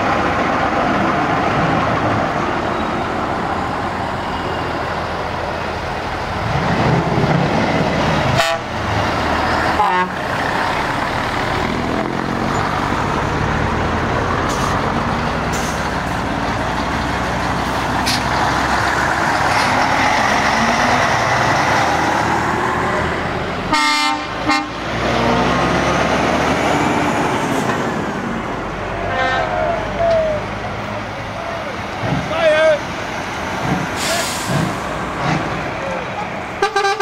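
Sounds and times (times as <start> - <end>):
diesel trucks driving past: 0.0 - 37.0
air horn honk: 8.4 - 8.7, 9.8 - 10.2, 23.7 - 24.8, 29.1 - 29.6, 36.6 - 37.0.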